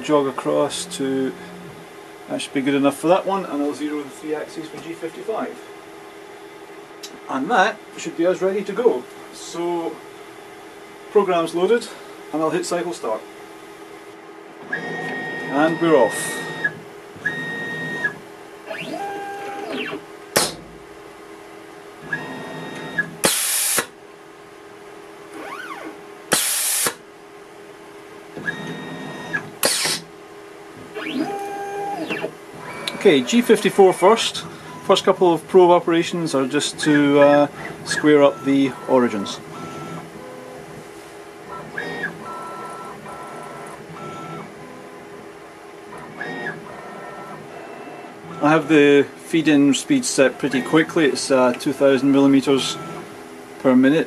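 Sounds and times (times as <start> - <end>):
machine axis motors whining: 0.0 - 5.5, 14.6 - 20.8, 22.0 - 24.0, 25.3 - 27.0, 28.3 - 30.1, 30.7 - 45.2, 45.9 - 53.1.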